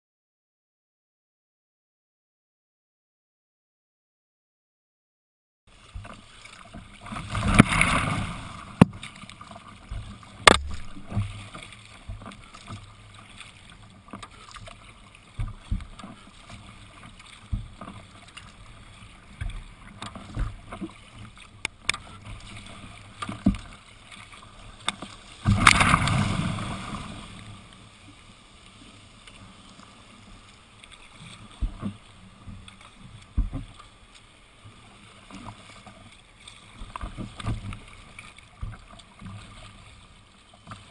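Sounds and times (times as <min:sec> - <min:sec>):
rushes of water: 0:05.7 - 0:40.9
water slapping against kayak hull: 0:05.8 - 0:27.8, 0:30.5 - 0:40.9
sharp knocks: 0:10.4 - 0:11.3.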